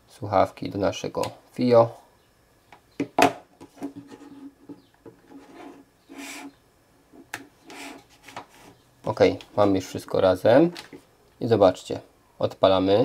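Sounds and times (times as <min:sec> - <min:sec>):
cables rubbing and scraping: 0:05.2 - 0:08.8.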